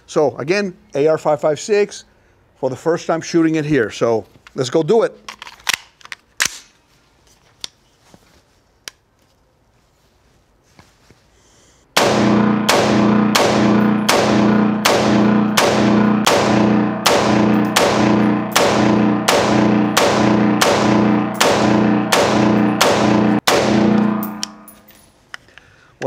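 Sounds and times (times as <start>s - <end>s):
rifle shots echoing indoors: 12.0s - 24.9s.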